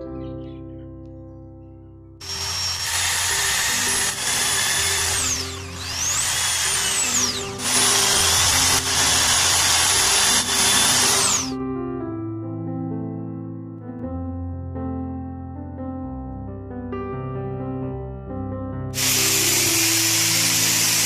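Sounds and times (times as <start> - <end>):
soft piano music: 0.0 - 2.2, 11.5 - 20.9
cordless drill boring wood: 2.2 - 11.6, 19.0 - 21.0.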